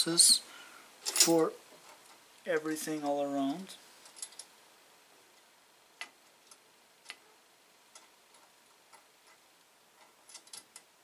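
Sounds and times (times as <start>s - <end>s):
small clicks of bolts and nuts: 1.0s - 2.2s, 4.0s - 4.5s, 5.4s - 7.2s, 7.9s - 9.4s, 10.0s - 10.9s.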